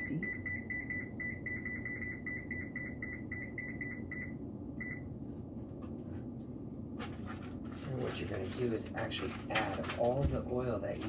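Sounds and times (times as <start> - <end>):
oven control panel beeping: 0.0 - 5.1.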